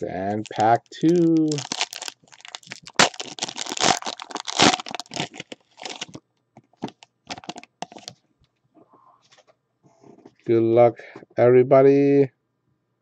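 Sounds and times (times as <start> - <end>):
foil wrapper crinkling: 0.2 - 6.2, 6.8 - 8.1
cards being shuffled: 6.8 - 8.2.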